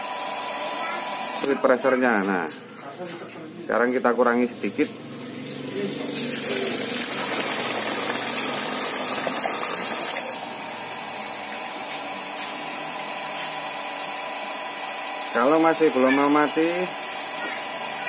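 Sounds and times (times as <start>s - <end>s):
electric water pump running: 0.0s - 1.6s, 5.0s - 18.0s
water gushing into a tub: 6.0s - 11.1s.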